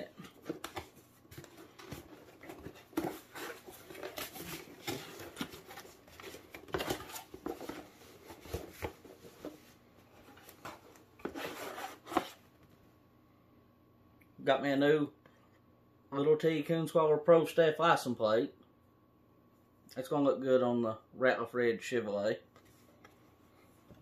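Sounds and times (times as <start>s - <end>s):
cardboard scraping and rustling: 0.0s - 12.4s.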